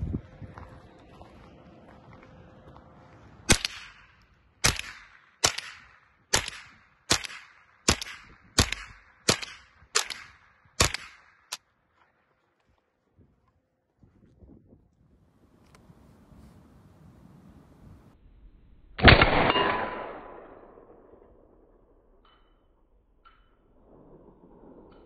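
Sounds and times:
rifle shots with echo: 3.5 - 11.6, 19.0 - 22.0.

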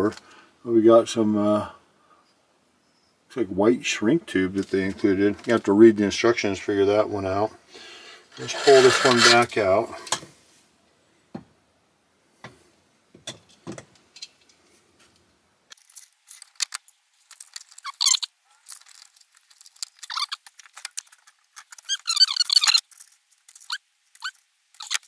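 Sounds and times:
wire insulation rubbing and scraping: 8.3 - 10.0, 15.8 - 25.0.

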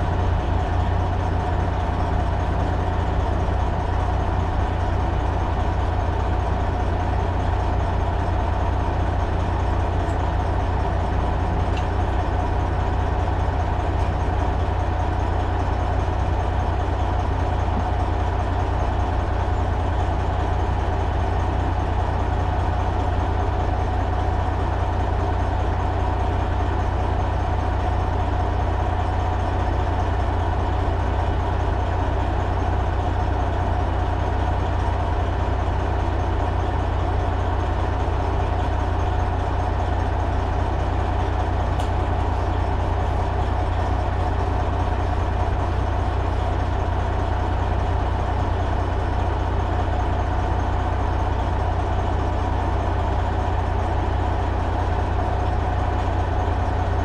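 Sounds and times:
diesel truck engine idling: 0.0 - 57.0.

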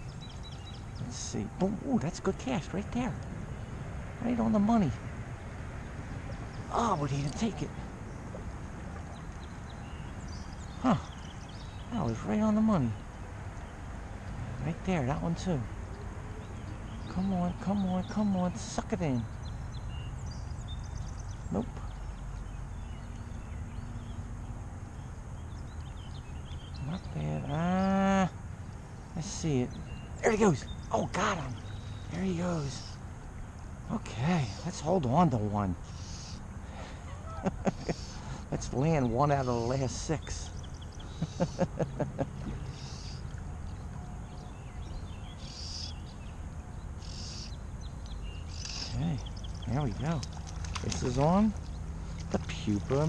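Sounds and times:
low rush of water or wind: 0.0 - 17.7
faint bird chirps: 9.0 - 13.7, 15.4 - 33.0, 33.8 - 52.9.

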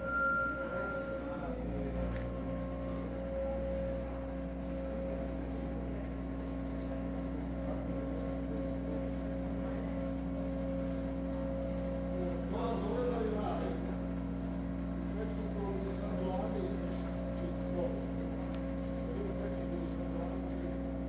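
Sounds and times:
faint steady high tone: 0.0 - 5.4
steady low hum: 0.0 - 21.0.

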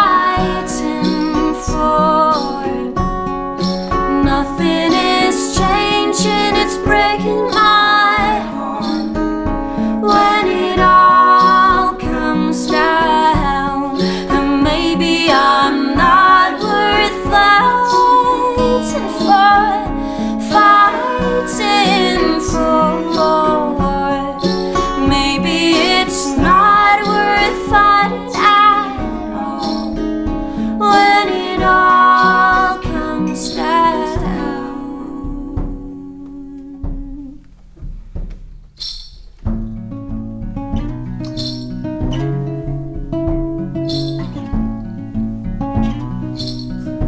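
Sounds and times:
woman singing: 0.0 - 3.2, 3.9 - 37.5
acoustic guitars: 0.0 - 47.0.

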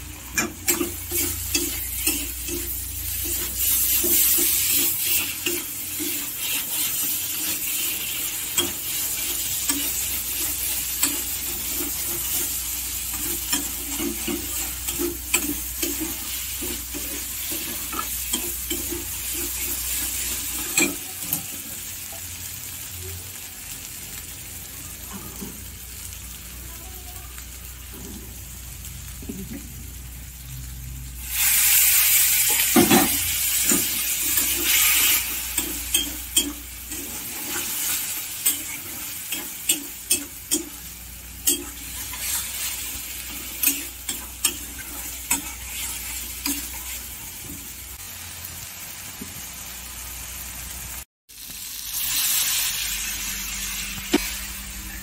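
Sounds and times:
curry sizzling in a pan: 0.0 - 55.0
spatula scraping pan: 0.3 - 21.5, 32.4 - 47.6.

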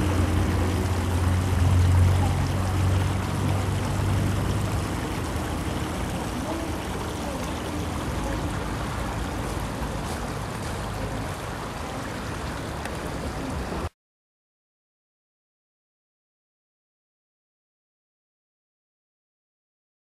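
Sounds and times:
steady rushing outdoor noise: 0.0 - 14.0.

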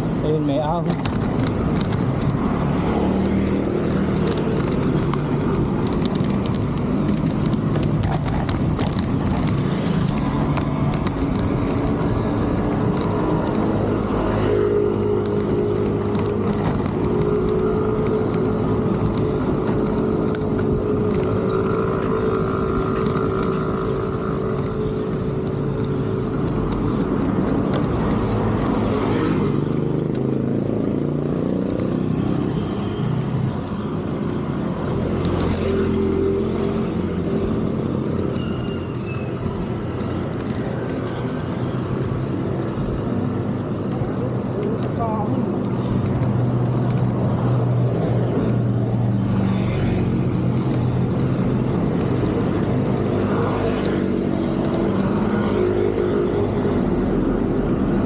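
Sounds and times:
car engines rumbling: 0.0 - 58.0
tyre and road noise: 0.0 - 58.0.

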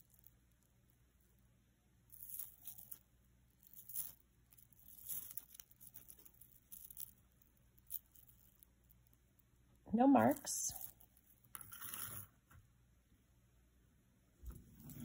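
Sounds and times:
metal chain necklace clinking: 2.1 - 3.0, 3.6 - 9.0.

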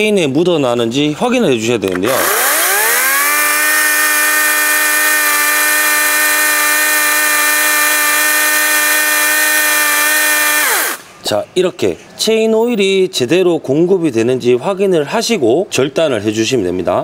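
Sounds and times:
cordless chainsaw whining: 2.0 - 11.1.

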